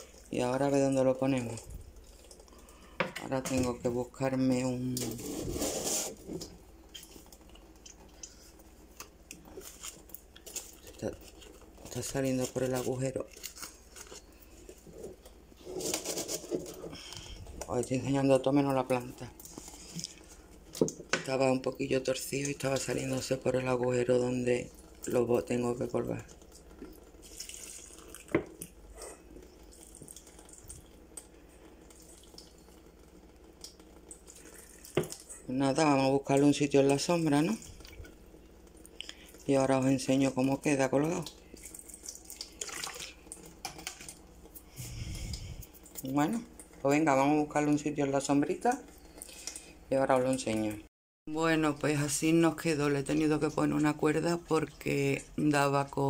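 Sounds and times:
water draining and dripping: 0.0 - 5.2, 16.6 - 50.9.

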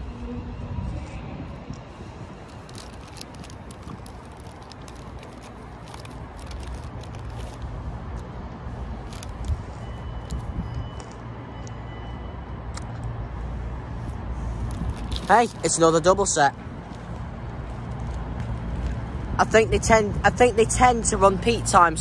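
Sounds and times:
sharp crackles: 2.4 - 7.7, 14.6 - 15.8.

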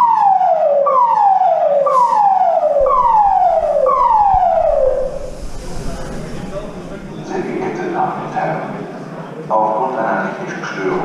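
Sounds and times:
evacuation alarm falling tone: 0.0 - 8.8.

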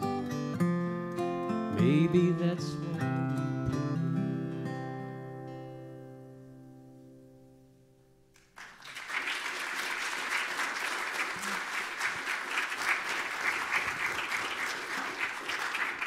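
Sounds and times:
acoustic guitar chord: 0.0 - 8.3
congregation applauding: 8.4 - 16.0.

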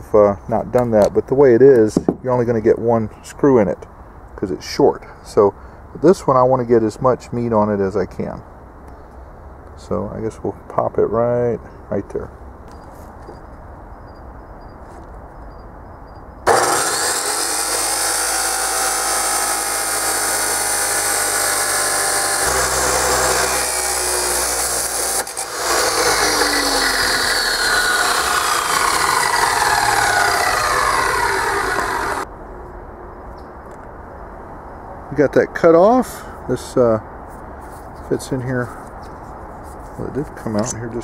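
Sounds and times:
chop saw cutting through steel: 16.5 - 32.2.

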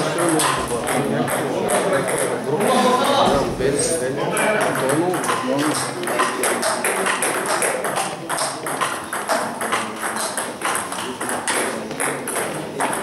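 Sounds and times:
table tennis ball clicking: 4.6 - 13.0.

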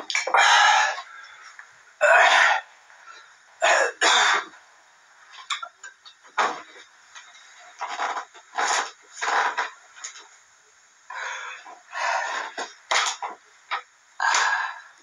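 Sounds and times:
person coughing and clearing throat: 2.0 - 2.6, 3.6 - 4.5.

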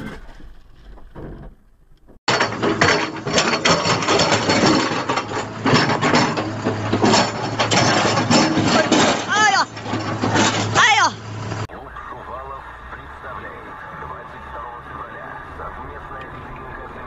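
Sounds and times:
engine humming: 0.0 - 17.0
stones clattering against steel: 2.3 - 10.9.

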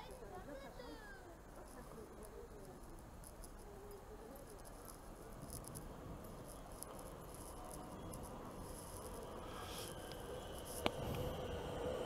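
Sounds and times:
faint electric train rumble: 3.6 - 12.0.

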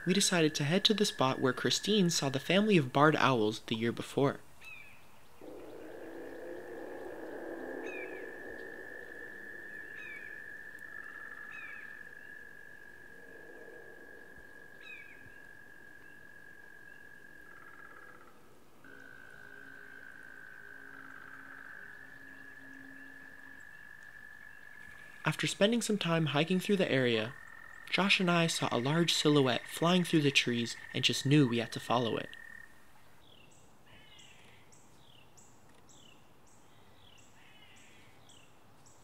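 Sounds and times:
frog lower trill: 5.4 - 32.7
frog high trill: 18.8 - 25.4.

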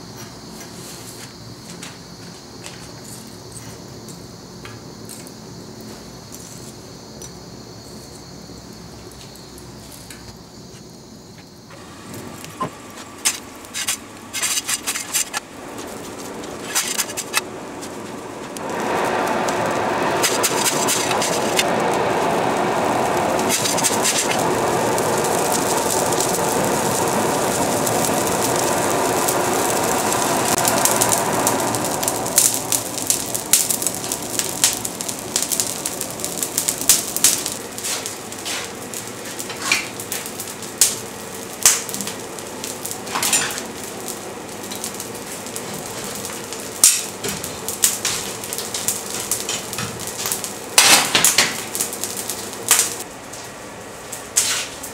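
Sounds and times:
burning coal crackling: 0.0 - 54.9
forge air blower rushing: 11.4 - 54.0
shovel scraping coal: 11.7 - 21.7, 23.4 - 24.7, 37.2 - 40.2, 43.1 - 43.7, 54.4 - 54.8.

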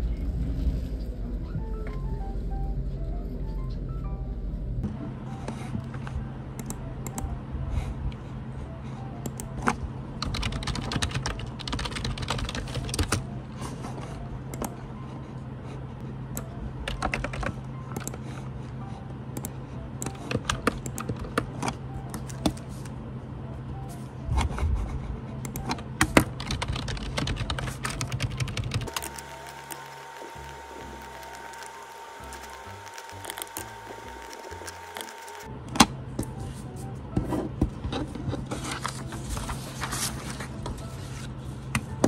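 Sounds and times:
low background hum: 0.0 - 42.0
computer keyboard typing: 9.3 - 13.3, 16.4 - 18.3, 19.4 - 22.8, 25.4 - 35.5.

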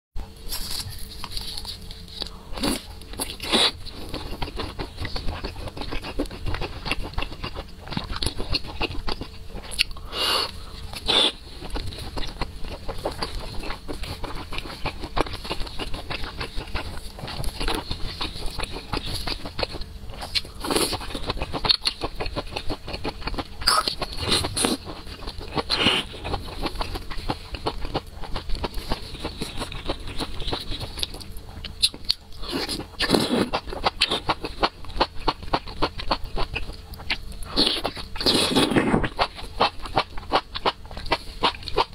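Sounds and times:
crunchy bites: 2.2 - 41.9
chewing with wet mouth clicks: 11.6 - 41.9.

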